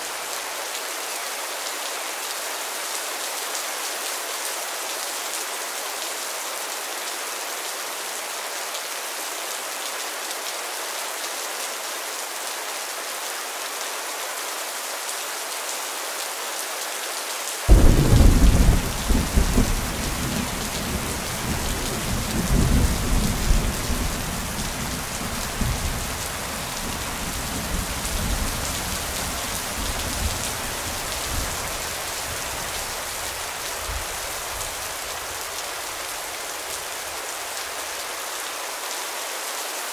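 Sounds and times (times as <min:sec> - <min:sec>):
steady rain falling: 0:00.0 - 0:39.9
thunder clap and rumble: 0:17.7 - 0:24.0.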